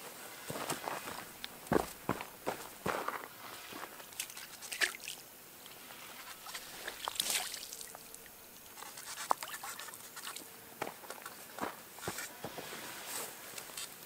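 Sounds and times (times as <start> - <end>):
water splashing and dripping: 4.2 - 5.2, 6.9 - 8.0.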